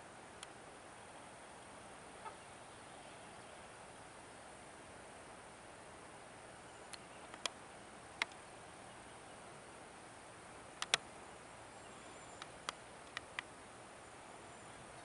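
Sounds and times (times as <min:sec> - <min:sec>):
faint outdoor hiss: 0:00.0 - 0:15.0
sharp ticks: 0:10.8 - 0:11.0.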